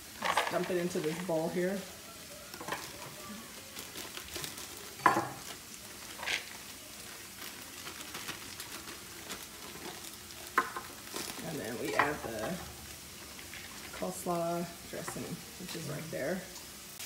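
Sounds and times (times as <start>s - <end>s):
plastic packaging crinkling: 0.0s - 14.4s
meat and onions sizzling in a skillet: 0.0s - 17.0s.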